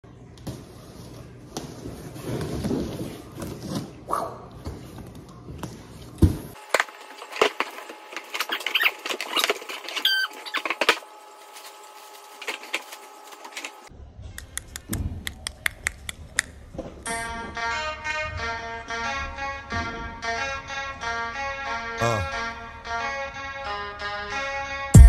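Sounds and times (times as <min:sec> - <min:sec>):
plastic packaging crinkling: 0:06.6 - 0:13.9.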